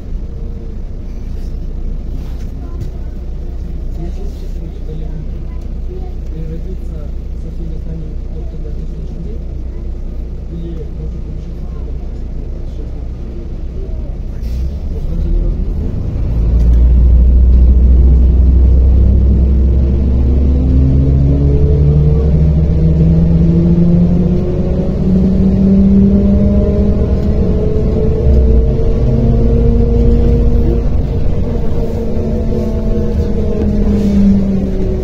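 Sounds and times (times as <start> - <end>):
bus drivetrain rumble: 0.0 - 35.0
bus whine rising in pitch: 13.8 - 35.0.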